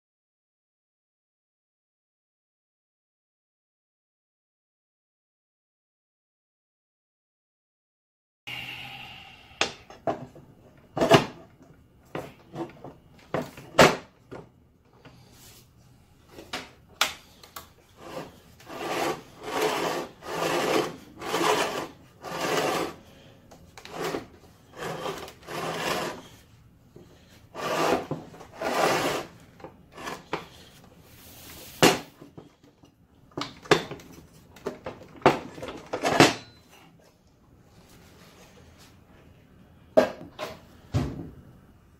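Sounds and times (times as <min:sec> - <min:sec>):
saw turntable scraping: 0:17.9 - 0:26.4, 0:27.1 - 0:31.9.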